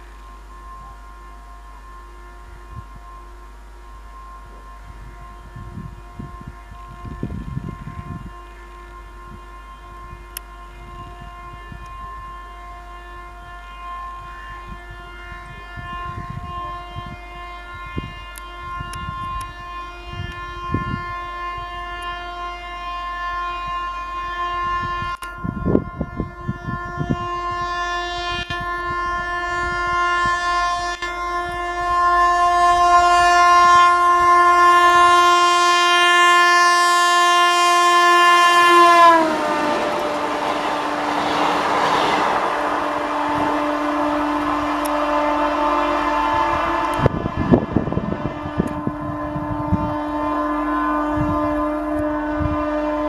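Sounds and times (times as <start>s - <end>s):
rush of passing train: 0.0s - 13.3s, 18.0s - 53.0s
locomotive air horn blast: 0.0s - 53.0s.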